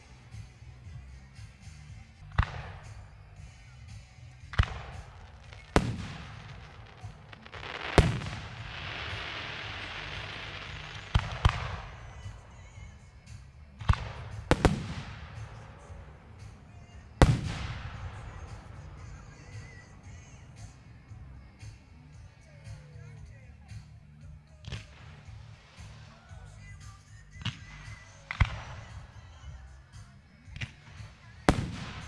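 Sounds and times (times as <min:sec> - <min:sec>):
firework bangs with echo: 0:02.3 - 0:03.0, 0:04.5 - 0:20.8, 0:30.6 - 0:32.0
steady hiss: 0:02.8 - 0:23.0.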